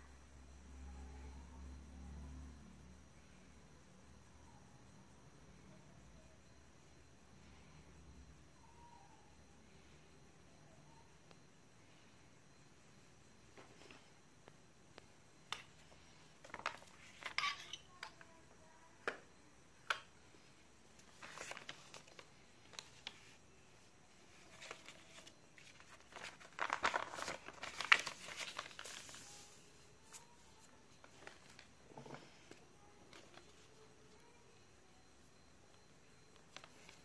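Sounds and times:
paper rustling and crinkling: 0:16.4 - 0:17.4, 0:21.0 - 0:23.4, 0:24.3 - 0:31.7.

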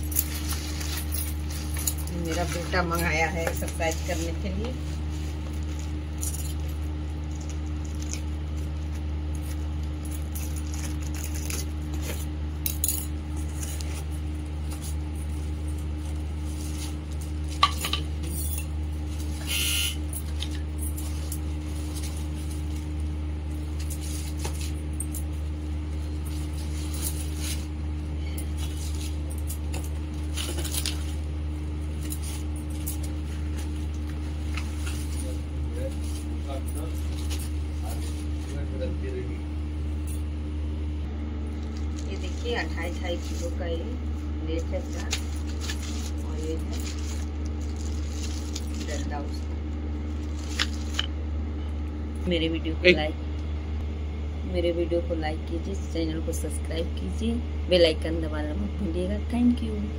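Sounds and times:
plastic wrap crinkling: 0:00.0 - 0:12.3, 0:13.2 - 0:38.8, 0:41.4 - 0:43.6, 0:44.8 - 0:51.1
steady low hum: 0:00.0 - 0:59.9.

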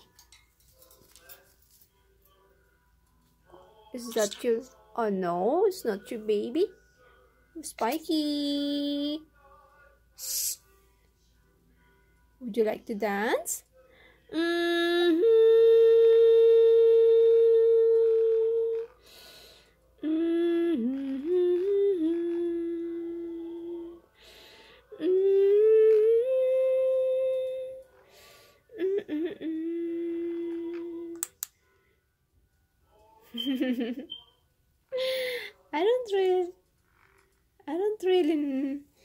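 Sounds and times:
woman humming: 0:04.0 - 0:04.6, 0:14.3 - 0:19.1, 0:20.0 - 0:24.1, 0:24.9 - 0:27.8, 0:28.7 - 0:31.5.

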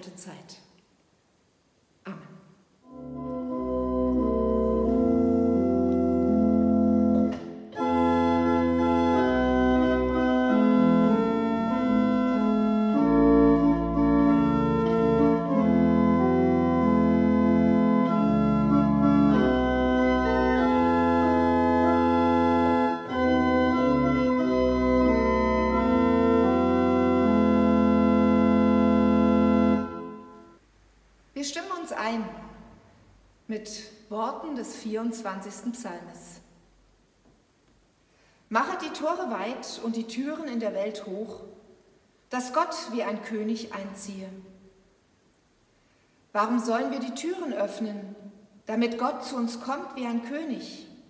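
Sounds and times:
church organ chords: 0:02.8 - 0:30.6.

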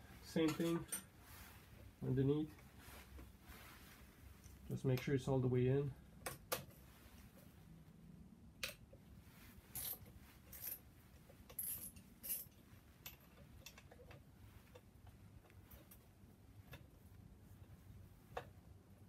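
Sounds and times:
short rustles: 0:00.0 - 0:04.9.

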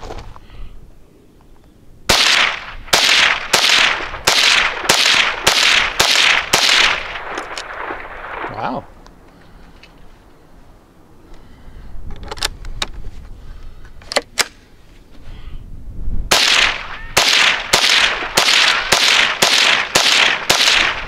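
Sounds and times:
rifle shots: 0:02.1 - 0:08.8, 0:16.3 - 0:21.0.

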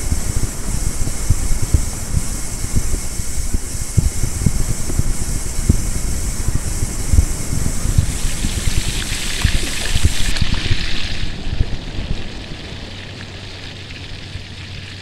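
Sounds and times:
low thumps: 0:00.0 - 0:11.8
low hum: 0:00.0 - 0:15.0
rushing water-like flow: 0:00.0 - 0:15.0.

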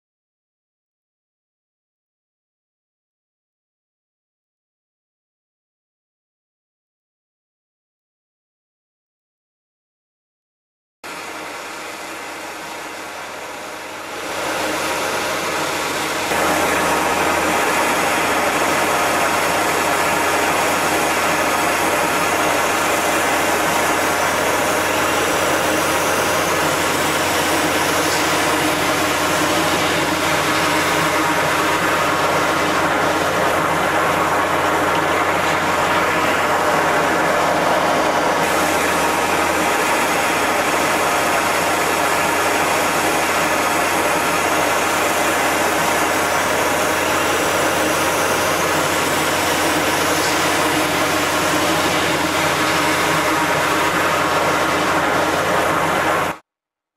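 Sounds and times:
plunger pump running: 0:11.1 - 0:56.4
water jet hissing: 0:11.3 - 0:56.4.

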